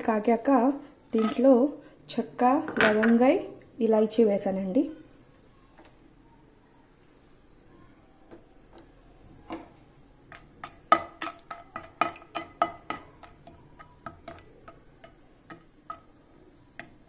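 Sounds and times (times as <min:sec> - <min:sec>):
spoon scraping and knocking a pan: 0:09.5 - 0:17.0.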